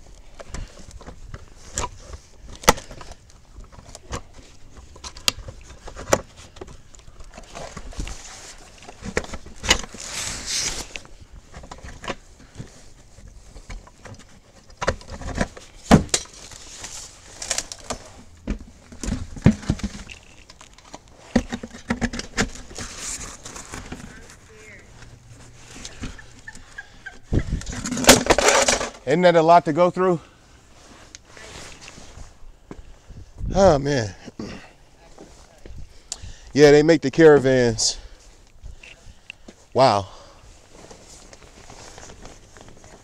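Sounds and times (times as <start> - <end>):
rustling scrape: 7.3 - 26.3, 27.4 - 29.0, 30.6 - 32.4, 40.5 - 43.0.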